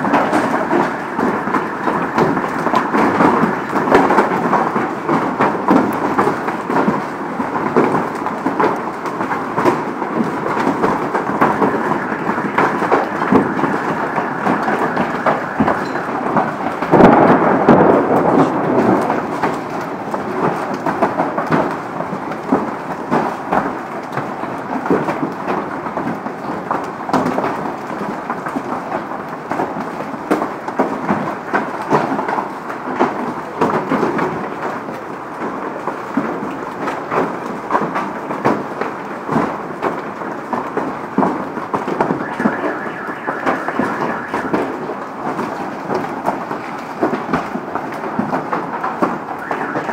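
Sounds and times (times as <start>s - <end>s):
hail pelting cars and pavement: 0.0s - 49.9s.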